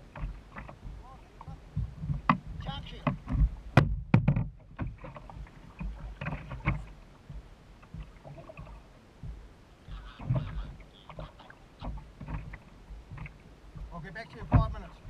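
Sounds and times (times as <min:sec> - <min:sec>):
low steady rumble: 0:00.0 - 0:15.0
knocks on plastic kayak hatch: 0:03.0 - 0:05.0.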